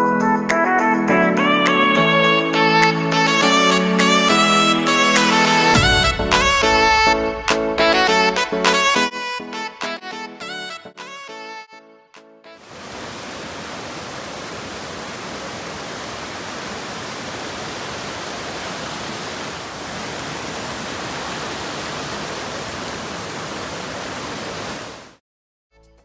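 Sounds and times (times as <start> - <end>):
stream rushing over boulders: 12.6 - 25.2.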